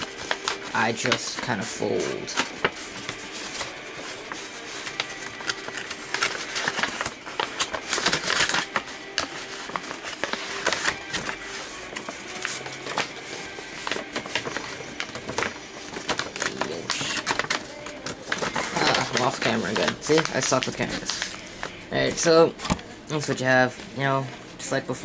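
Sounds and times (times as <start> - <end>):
paper rustling and crackling: 0.0 - 25.0.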